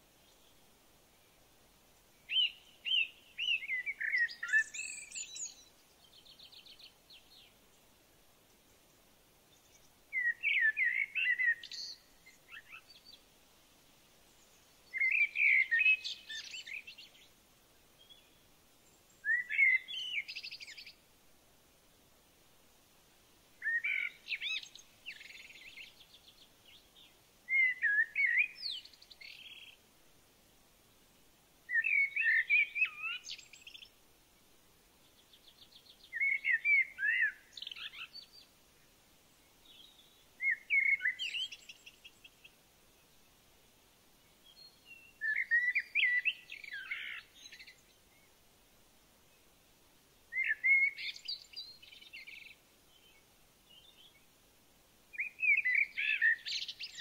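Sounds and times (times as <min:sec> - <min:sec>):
songbird warbling: 0:02.3 - 0:05.7, 0:09.7 - 0:13.2, 0:14.4 - 0:17.2, 0:19.2 - 0:21.0, 0:23.6 - 0:29.8, 0:31.7 - 0:33.9, 0:35.5 - 0:38.4, 0:39.6 - 0:42.4, 0:44.5 - 0:48.3, 0:50.3 - 0:54.2, 0:55.1 - 0:57.0.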